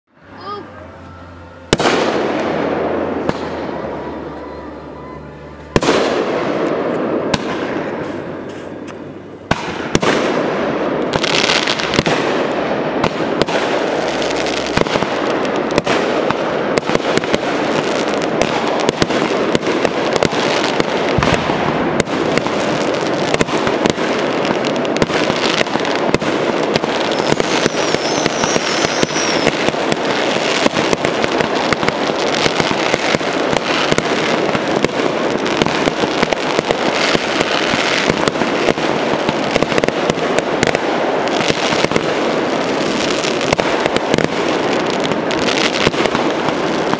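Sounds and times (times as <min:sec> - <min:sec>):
dense steady noise: 0:00.0 - 0:46.9
firework shells bursting: 0:05.8 - 0:38.5.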